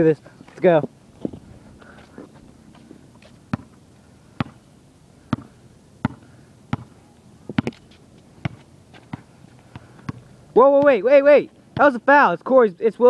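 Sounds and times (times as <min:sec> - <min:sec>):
basketball bouncing on concrete: 0:03.5 - 0:03.8, 0:04.4 - 0:04.6, 0:05.3 - 0:07.8, 0:08.4 - 0:11.1, 0:11.7 - 0:12.1.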